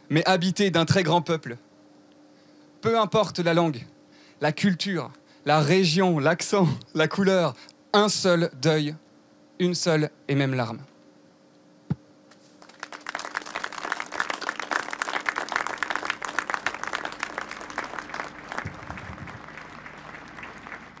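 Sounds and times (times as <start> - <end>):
audience applauding: 12.6 - 21.0.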